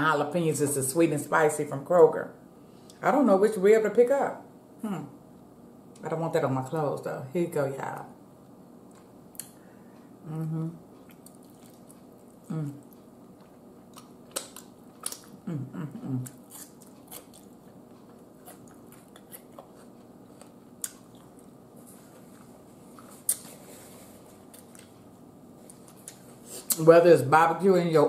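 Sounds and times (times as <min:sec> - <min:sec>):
low voice hum: 0:10.2 - 0:11.0, 0:12.4 - 0:13.0, 0:15.3 - 0:16.4
chewing with mouth clicks: 0:10.9 - 0:23.6, 0:24.3 - 0:26.8.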